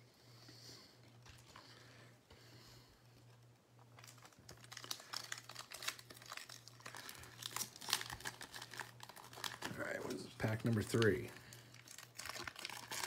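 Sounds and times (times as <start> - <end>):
foil wrapper crinkling: 3.8 - 13.0.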